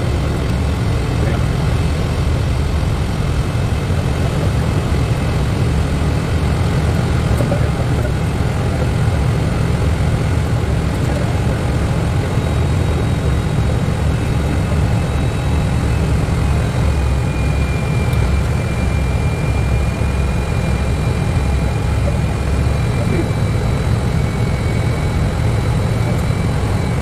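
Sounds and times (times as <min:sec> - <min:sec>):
engine and airflow rumble: 0:00.0 - 0:27.0.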